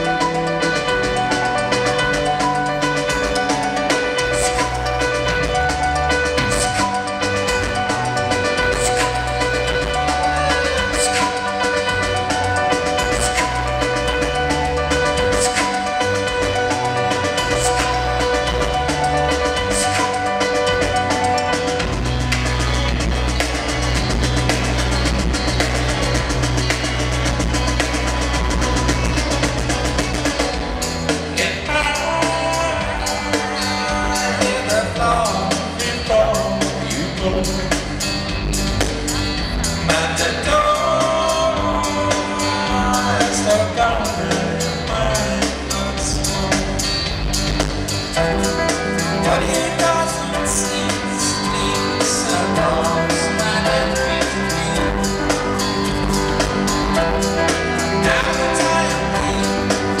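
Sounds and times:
crowd: 0.0 - 60.0
rock band playing live: 0.0 - 60.0
male lead vocal singing: 31.3 - 38.0, 39.8 - 47.1, 48.2 - 60.0.

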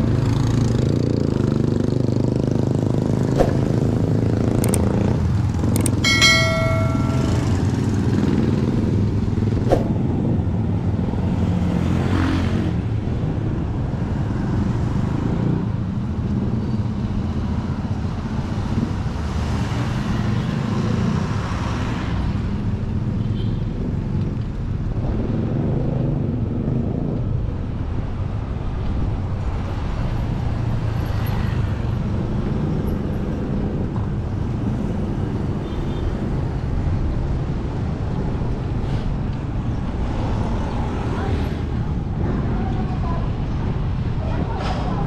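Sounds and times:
vehicles passing: 0.0 - 45.0.

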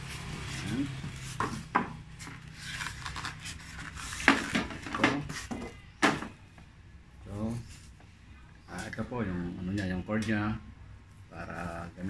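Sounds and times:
plastic packaging rustling: 0.1 - 5.5.

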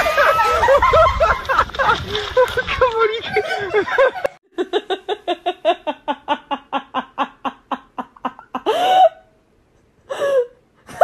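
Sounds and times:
person laughing hard: 0.0 - 2.7.

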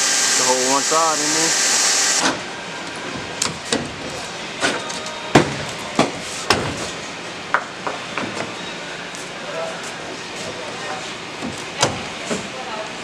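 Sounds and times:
cordless drill whirring: 0.0 - 2.2.

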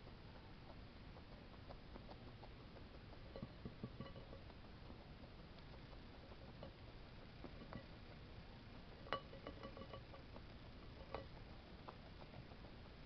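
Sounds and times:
guinea pig chewing: 0.0 - 13.0
clinks against glass bowl: 3.4 - 4.4, 9.1 - 10.1.

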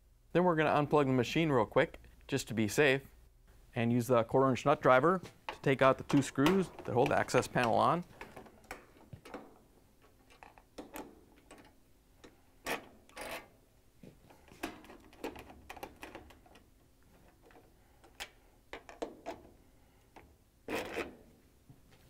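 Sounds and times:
screws clicking and scraping in metal: 10.0 - 13.5.

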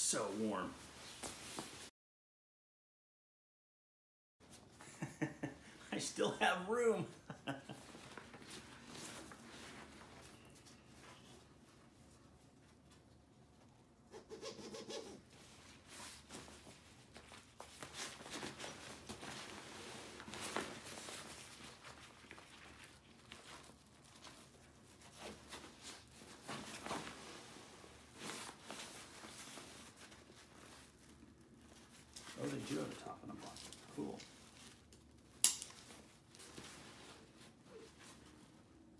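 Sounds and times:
backpack fabric rustling and crinkling: 7.7 - 12.0, 15.6 - 38.9.

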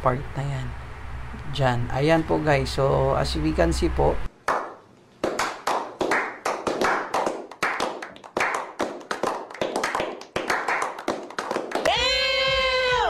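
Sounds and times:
men clapping hands: 4.4 - 12.3.

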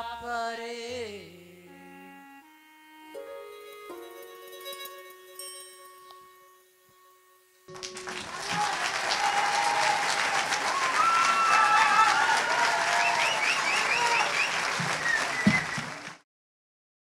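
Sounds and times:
music chord: 2.1 - 8.4
audience applauding: 7.7 - 16.2
people cheering: 7.7 - 16.2.

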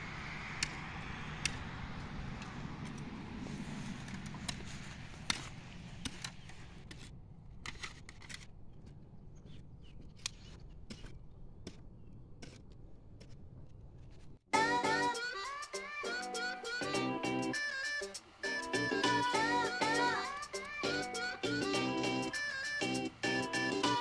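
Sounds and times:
hoe scraping stony soil: 2.8 - 8.6.

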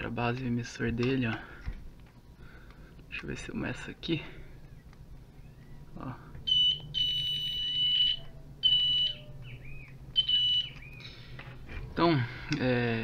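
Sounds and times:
multimeter continuity beeps: 6.4 - 11.0.

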